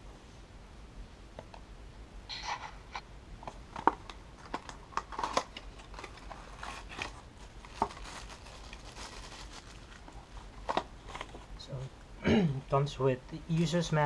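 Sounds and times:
paperboard box rustling: 0:03.8 - 0:11.5.

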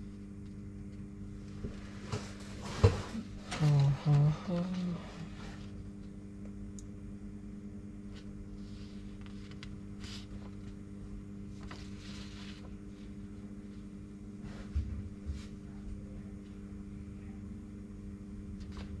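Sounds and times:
low electrical hum: 0:00.0 - 0:19.0
paper rustling: 0:08.1 - 0:10.8, 0:11.5 - 0:13.2, 0:18.6 - 0:19.0.

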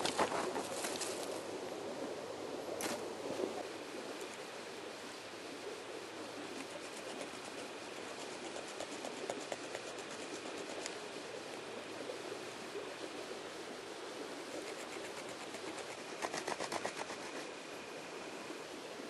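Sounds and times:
stone sawing wooden shaft: 0:14.7 - 0:17.4.

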